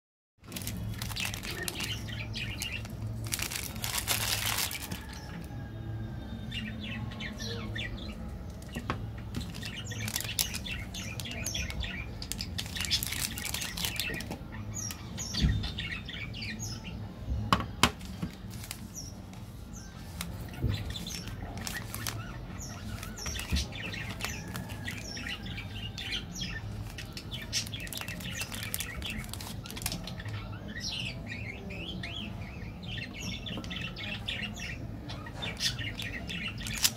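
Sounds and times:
plastic wrappers crinkling: 0.4 - 5.5, 8.7 - 15.0, 18.0 - 30.4, 35.5 - 36.9
birds chirping: 0.4 - 36.9.

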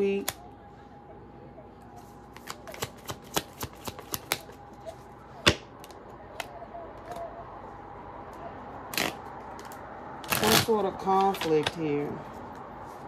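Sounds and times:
cards being shuffled: 2.3 - 5.0.

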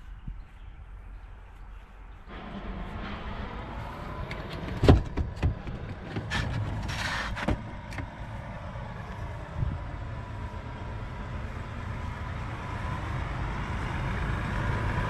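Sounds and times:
car engine running: 2.3 - 15.0
sharp knocks and clunks: 4.3 - 8.2.

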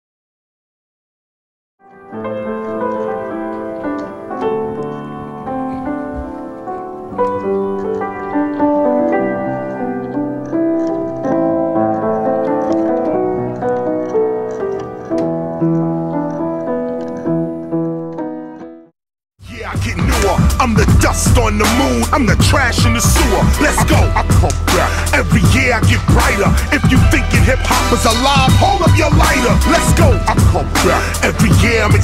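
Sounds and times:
solo piano playing: 1.8 - 18.9.

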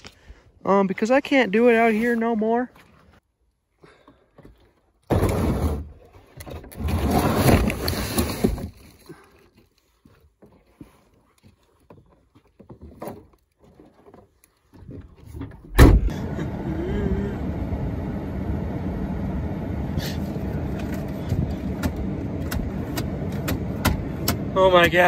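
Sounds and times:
gear rustling and scraping: 6.2 - 15.7.

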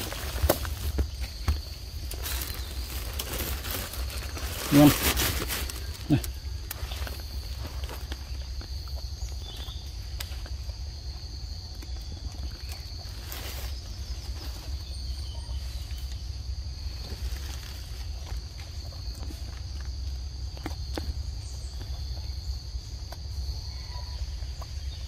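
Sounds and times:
rustling: 0.0 - 8.8.

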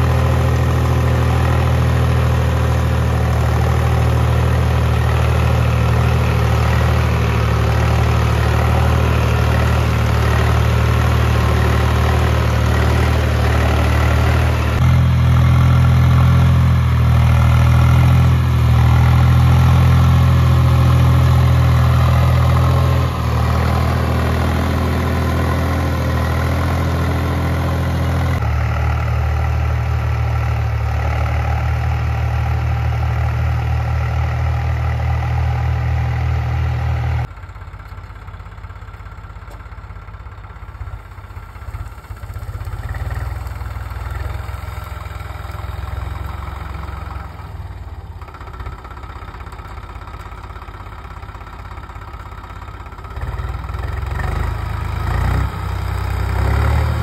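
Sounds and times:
tractor diesel engine droning: 0.0 - 57.0.

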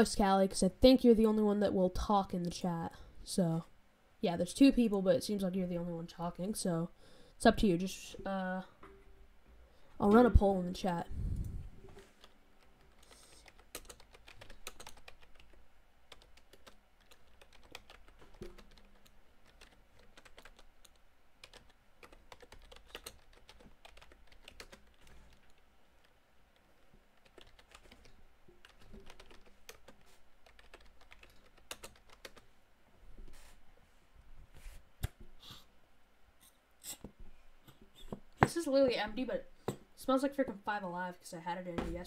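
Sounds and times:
typing on computer keyboard: 12.2 - 25.6, 26.6 - 32.4.

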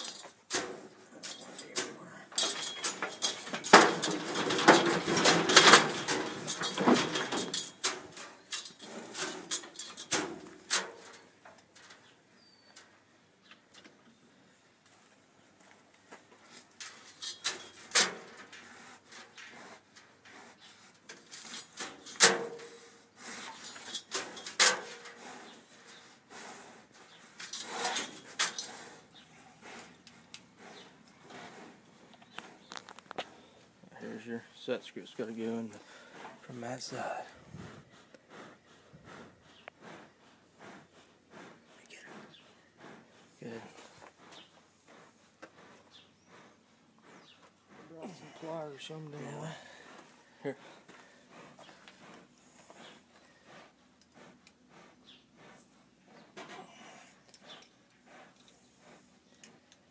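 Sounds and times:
knocks and rattles of metal headgate: 0.0 - 11.2, 21.2 - 22.8, 23.6 - 25.2.

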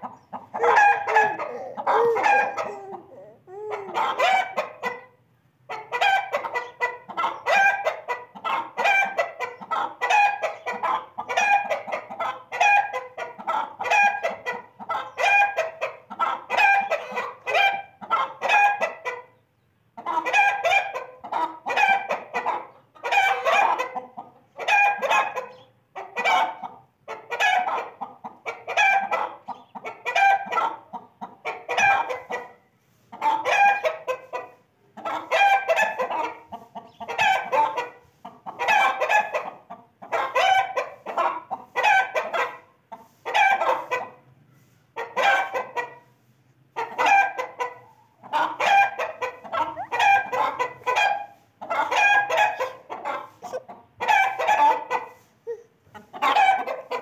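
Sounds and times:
chicken calling: 0.0 - 19.4, 20.0 - 44.2, 46.8 - 57.0.

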